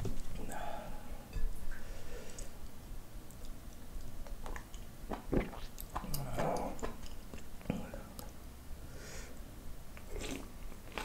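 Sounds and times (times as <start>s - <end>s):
chewing and mouth noises: 3.3s - 8.4s, 10.0s - 11.0s.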